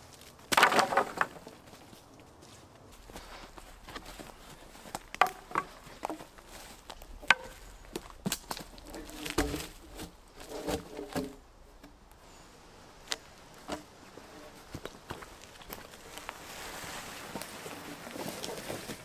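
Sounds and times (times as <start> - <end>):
bark and leaves scraping: 0.0 - 12.4, 13.0 - 19.0
wood cracking and knocking: 0.5 - 1.7, 3.0 - 12.0.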